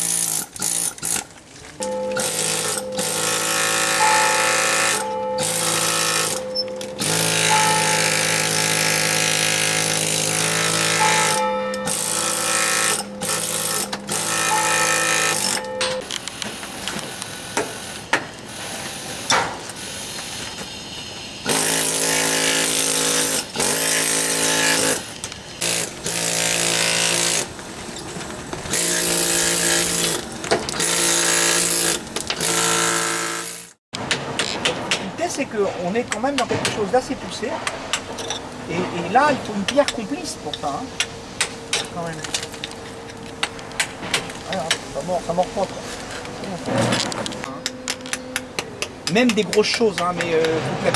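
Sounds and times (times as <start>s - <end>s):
pneumatic hammer chiselling stone: 0.0s - 16.1s, 21.4s - 27.5s, 28.7s - 35.0s.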